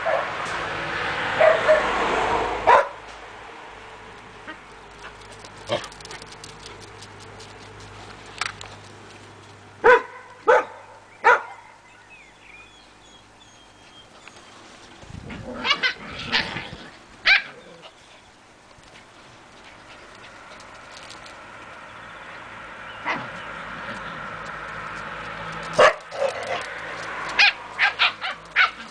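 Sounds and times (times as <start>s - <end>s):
puppies yapping: 15.2s - 18.3s, 22.9s - 28.9s.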